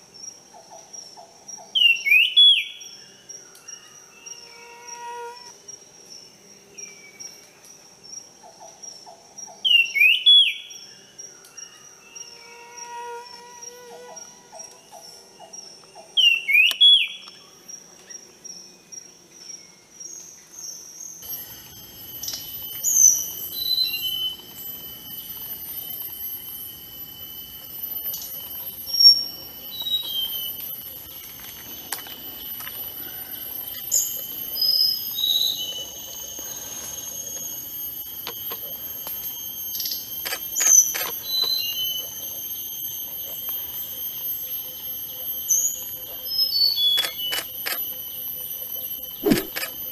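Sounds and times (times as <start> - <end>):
songbird whistling: 16.2 - 17.2, 21.2 - 31.2, 33.0 - 42.9, 43.8 - 47.5
high-pitched ringing: 21.2 - 49.9.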